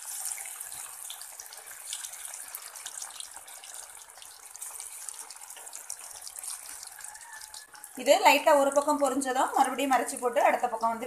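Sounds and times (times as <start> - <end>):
oil crackling and spitting: 0.0 - 8.0
deep-frying sizzle: 0.0 - 11.0.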